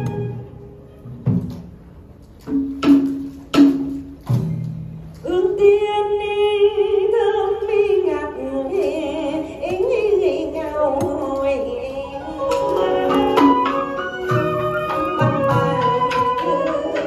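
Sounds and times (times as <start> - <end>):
percussion strikes: 0.0 - 5.2, 12.4 - 17.0
person singing long wavering notes: 11.3 - 17.0
pitched instruments: 12.2 - 17.0.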